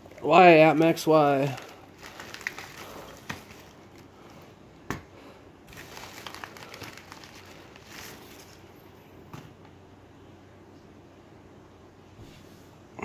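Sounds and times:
plastic mailer crinkling: 0.0 - 4.5, 5.7 - 8.7.

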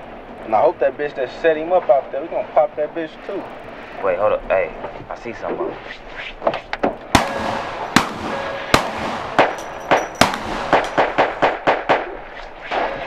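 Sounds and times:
gunshots: 7.1 - 13.0.

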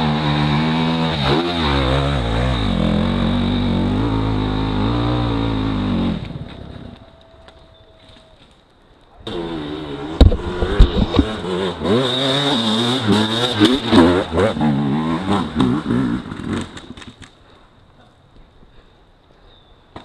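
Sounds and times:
motorcycle engine revving: 0.0 - 6.9, 9.3 - 17.0.

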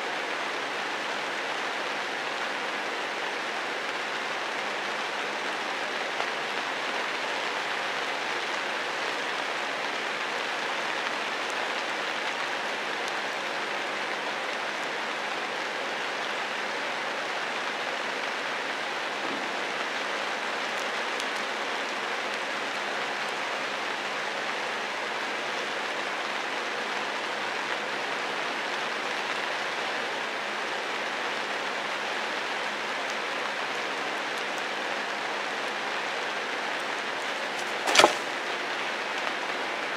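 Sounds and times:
rain falling on foliage: 0.0 - 39.9.

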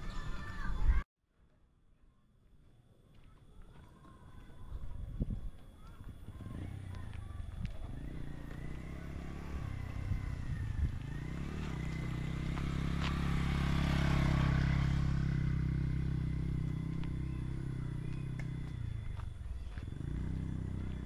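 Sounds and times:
motorcycle passing by: 5.8 - 21.0.

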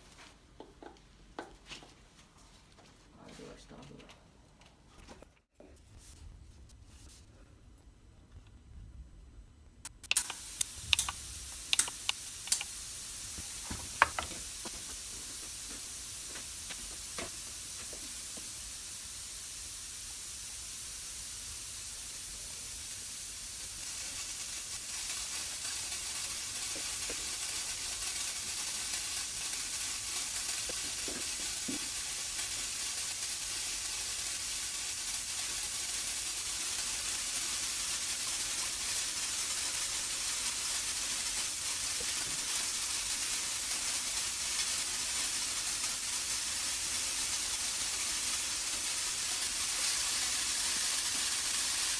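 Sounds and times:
sharp clicks: 9.8 - 12.7
paint spray gun hissing: 10.0 - 51.9.

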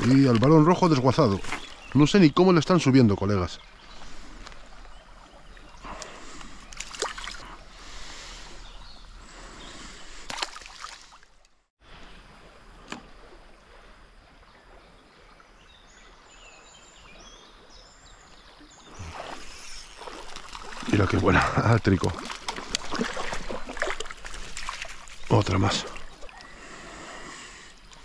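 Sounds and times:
water sloshing: 0.0 - 11.6, 18.3 - 27.0
river water flowing: 0.0 - 28.0.

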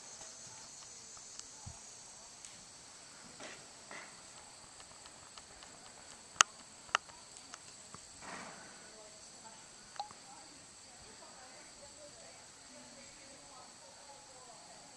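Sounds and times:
insects chirring: 0.0 - 14.9
faint ticks: 0.1 - 1.8, 2.4 - 2.6, 3.9 - 8.1, 9.9 - 10.2
sharp clicks: 4.3 - 8.0.

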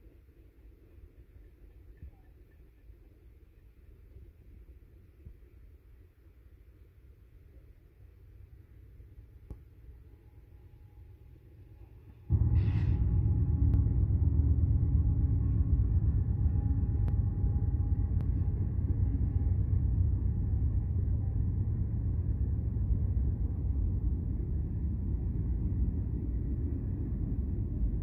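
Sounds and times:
faint locomotive hum: 0.0 - 28.0
freight train wheels rumbling: 12.0 - 28.0.

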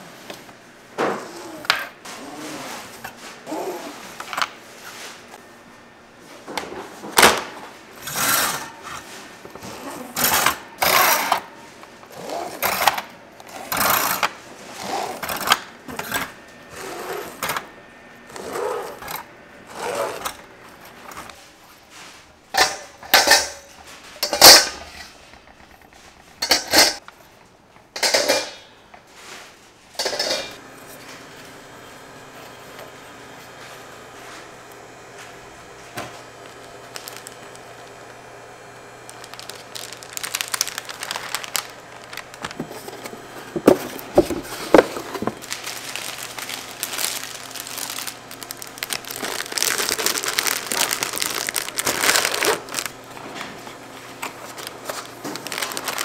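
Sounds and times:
handling clatters and rustles: 39.1 - 56.0.

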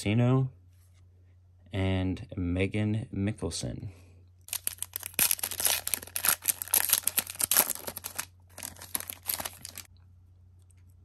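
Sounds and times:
trading cards clicking and rustling: 4.5 - 9.9.

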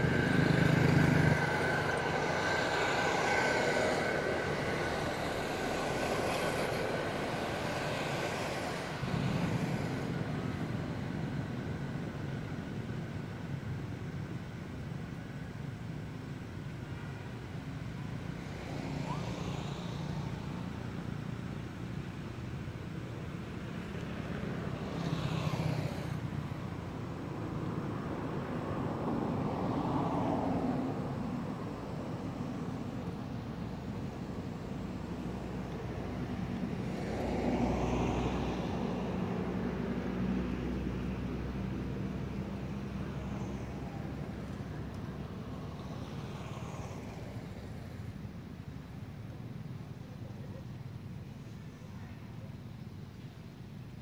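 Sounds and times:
outdoor background noise: 0.0 - 54.0
rumble of passing traffic: 0.0 - 54.0
vehicle engine hum: 0.0 - 54.0.

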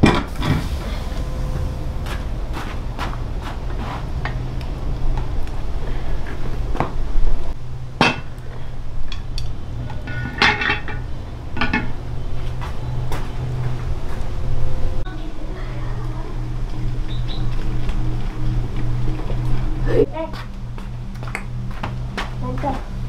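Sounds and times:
low hum: 0.0 - 23.0
dishes and utensils clinking: 9.9 - 12.0.

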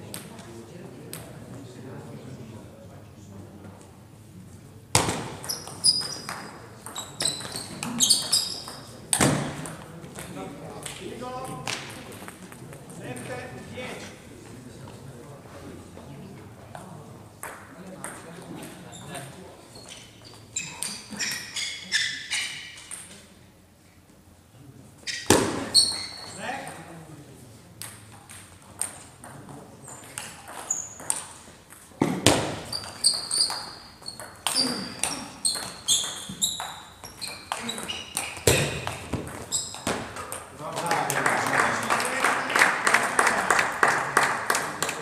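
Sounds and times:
sports shoes squeaking on floor: 4.9 - 10.3, 18.5 - 23.2, 25.0 - 26.8, 29.8 - 40.4
hard table tennis hit: 4.9 - 12.4, 25.2 - 26.9, 27.8 - 40.5
table tennis ball pinging: 5.0 - 11.0, 27.8 - 40.5.

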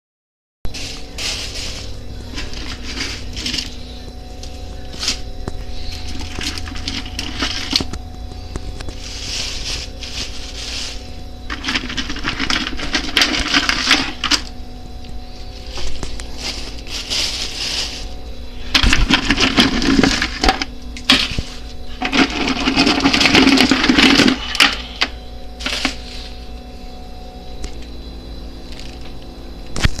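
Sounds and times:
plastic bag rustling: 0.7 - 14.6, 15.3 - 24.9, 25.6 - 26.5
steady low hum: 0.7 - 30.0.

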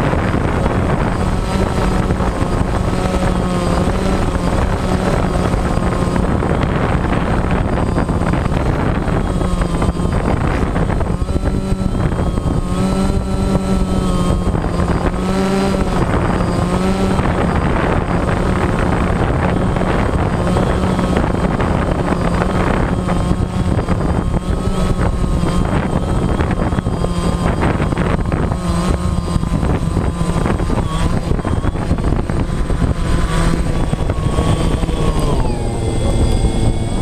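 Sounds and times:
drone propellers whining: 0.0 - 37.0.

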